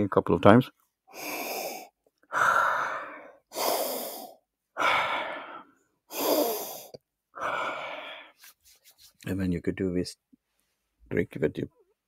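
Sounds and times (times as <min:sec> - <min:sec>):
man breathing deeply through hands: 0:01.1 - 0:08.6.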